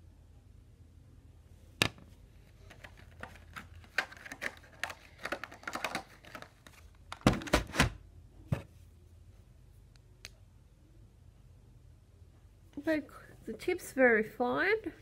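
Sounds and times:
plastic pens clicking and rattling: 2.6s - 7.2s.

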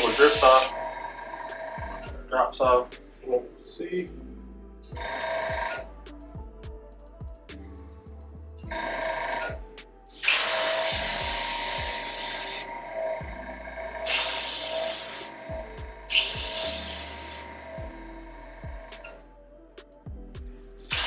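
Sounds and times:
spray can hissing: 0.0s - 0.7s, 10.1s - 12.6s, 14.0s - 15.4s, 16.1s - 17.5s, 20.8s - 21.0s.

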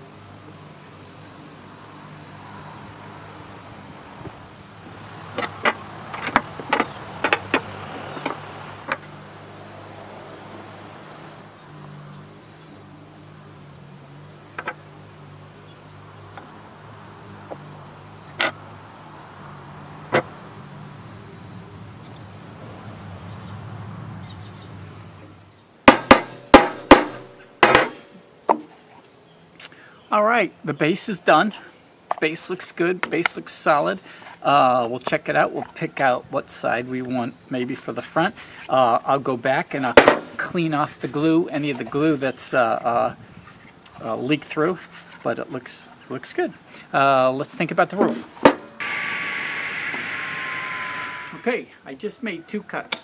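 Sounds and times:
hammer tapping a nail into wood: 25.9s - 28.7s.

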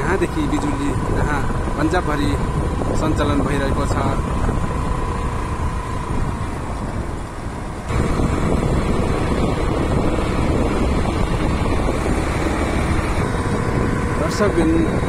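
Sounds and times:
vehicle road and engine rumble: 0.0s - 15.0s
wind noise on microphone: 0.0s - 15.0s.

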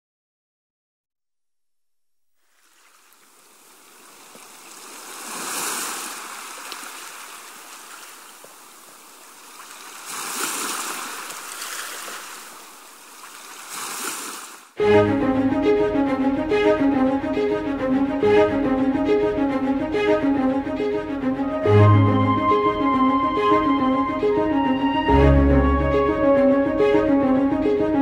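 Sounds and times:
surf on rocky shore: 2.6s - 14.7s.

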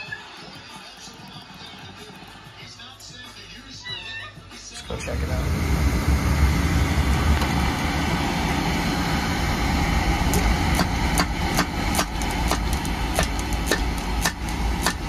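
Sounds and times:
oil burner roaring: 4.8s - 15.0s.

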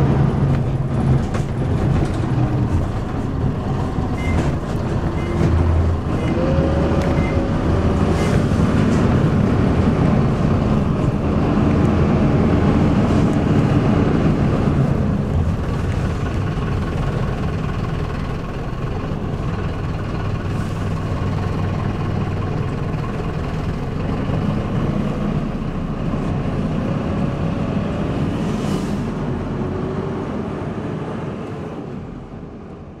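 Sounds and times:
bus engine rumbling: 0.0s - 33.0s.

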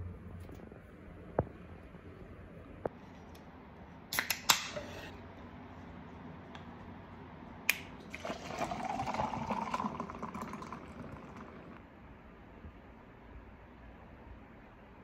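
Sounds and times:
drink pouring over ice: 8.0s - 11.8s
soda fizzing: 8.0s - 11.8s.

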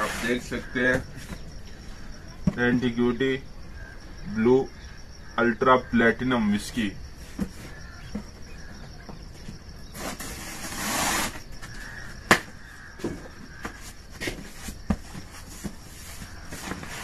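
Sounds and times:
cardboard flaps scraping and tapping: 12.3s - 17.0s.

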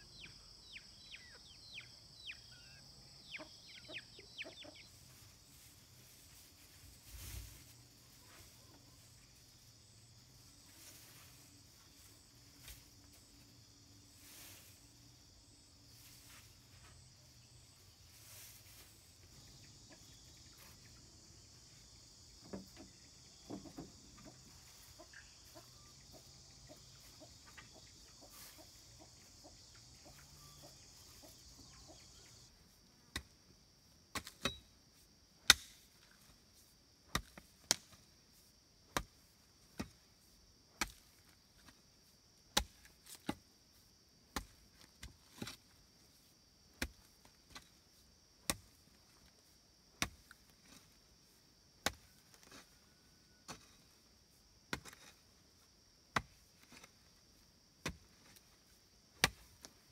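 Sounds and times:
insects droning: 0.0s - 59.9s
blade chopping wood: 34.1s - 34.6s, 35.4s - 35.9s, 37.1s - 38.0s, 42.6s - 43.4s, 59.2s - 59.6s.

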